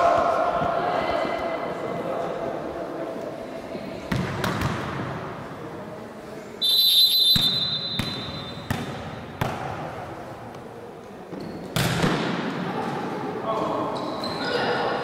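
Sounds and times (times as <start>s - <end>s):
volleyball bouncing on gym floor: 4.1s - 5.1s, 7.3s - 10.0s, 11.4s - 12.5s
referee's whistle blast: 6.6s - 8.7s.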